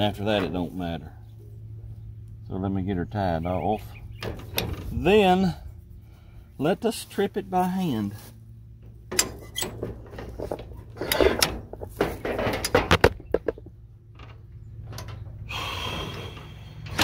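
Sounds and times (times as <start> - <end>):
steady low hum: 0.0 - 17.0
metal linkage clicking and clanking: 9.0 - 15.4.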